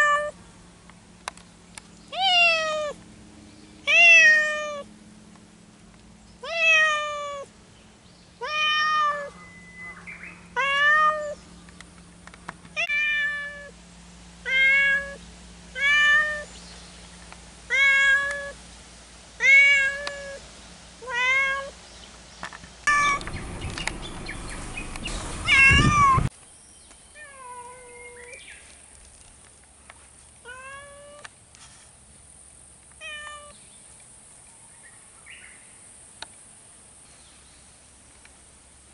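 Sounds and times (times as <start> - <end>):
cat meowing: 0.0 - 0.4, 2.1 - 3.0, 3.9 - 4.9, 6.4 - 7.5, 8.4 - 9.4, 10.6 - 11.4, 12.8 - 13.7, 14.4 - 15.2, 15.8 - 16.5, 17.7 - 18.6, 19.4 - 20.4, 21.0 - 21.7, 22.9 - 23.3, 25.4 - 26.3, 33.0 - 33.6
rushing noise: 22.9 - 26.3.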